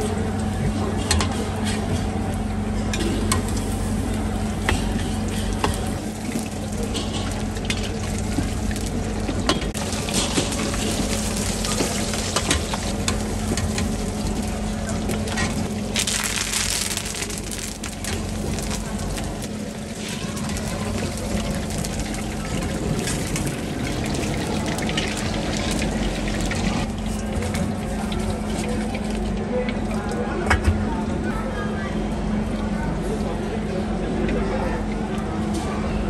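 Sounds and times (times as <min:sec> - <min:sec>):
deep-frying sizzle in hot oil: 0:03.1 - 0:29.4.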